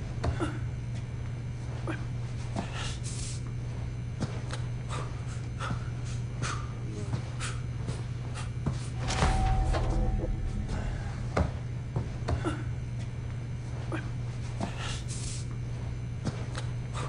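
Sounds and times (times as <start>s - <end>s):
steady low hum: 0.0s - 17.0s
man breathing heavily: 1.8s - 3.4s, 4.8s - 8.6s
rush of noise: 9.0s - 12.2s.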